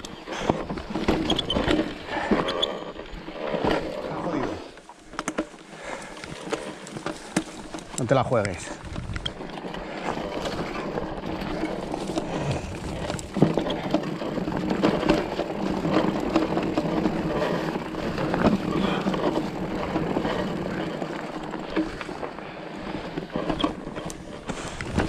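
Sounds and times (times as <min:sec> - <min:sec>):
bike rattling and knocking: 0:00.0 - 0:25.0
tyres rumbling over dirt: 0:00.0 - 0:25.0.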